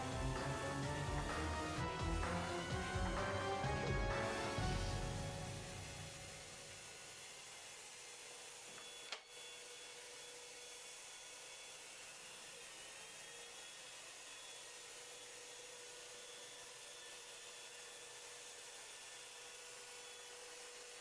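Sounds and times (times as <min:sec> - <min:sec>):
paint sprayer whirring and hissing: 0:00.0 - 0:21.0.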